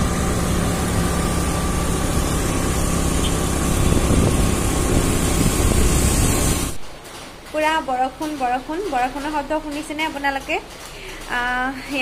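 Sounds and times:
tyres hissing on wet road: 0.0 - 6.8
vehicle engine hum: 0.0 - 6.8
rushing air: 0.0 - 6.9.

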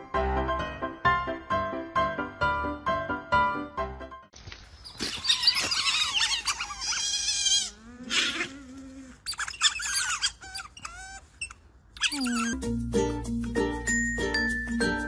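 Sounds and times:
otters chirping and squeaking: 4.7 - 12.6.

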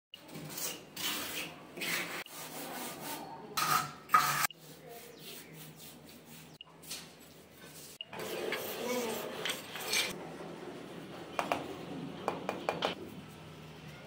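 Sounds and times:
trowel scraping cement plaster: 0.2 - 10.2.

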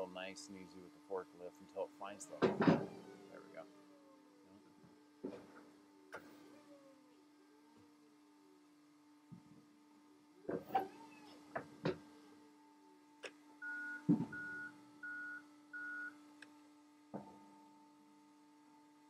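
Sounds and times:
reversing alarm beeps: 13.6 - 16.2.

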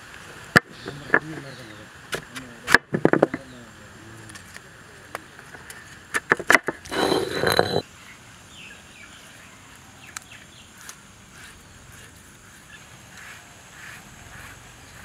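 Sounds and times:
rough scraping noise: 6.6 - 7.8.

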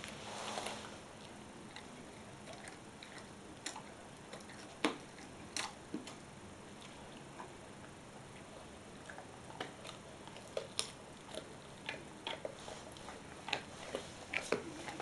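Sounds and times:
dog crunching chew stick: 0.0 - 7.1, 9.0 - 15.0.

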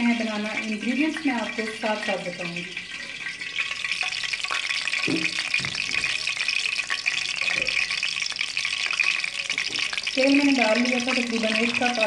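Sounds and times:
oil sizzling in pan: 0.0 - 12.0.

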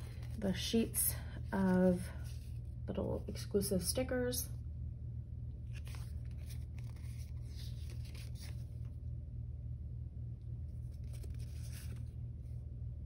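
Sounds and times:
paper sheets rustling: 0.0 - 1.0, 5.7 - 9.0, 10.8 - 12.2
low hum: 0.0 - 13.0.

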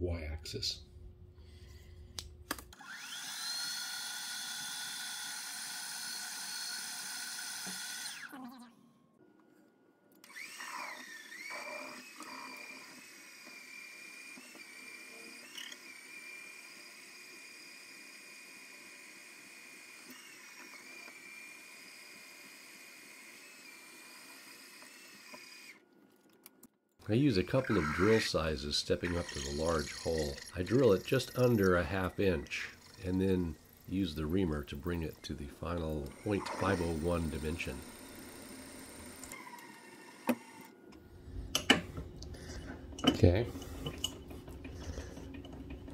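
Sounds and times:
milling machine spindle whine: 2.8 - 8.2, 10.3 - 22.0, 27.3 - 40.7.

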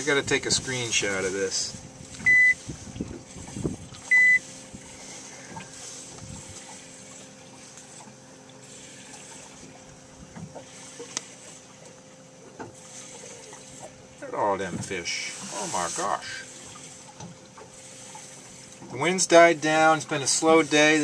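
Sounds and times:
faint water wash: 0.0 - 21.0
short high electronic beep: 2.3 - 2.6, 4.1 - 4.4.

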